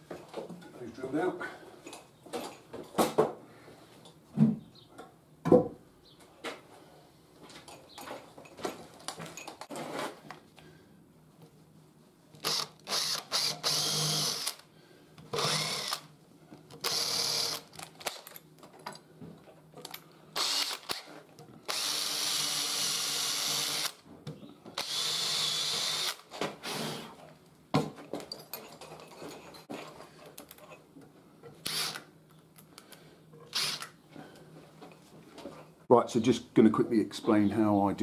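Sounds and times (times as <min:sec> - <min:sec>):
cordless drill boring into wood: 0:12.4 - 0:14.6, 0:15.3 - 0:16.1, 0:16.8 - 0:17.7, 0:20.4 - 0:24.0, 0:24.8 - 0:27.0, 0:31.6 - 0:32.0, 0:33.5 - 0:33.9.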